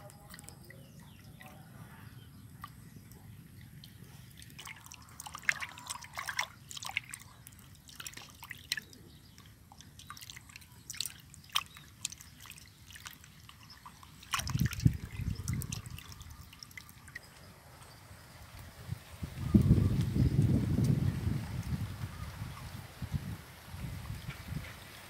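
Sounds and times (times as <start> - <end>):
water splashing in steel bowl: 3.8 - 17.2.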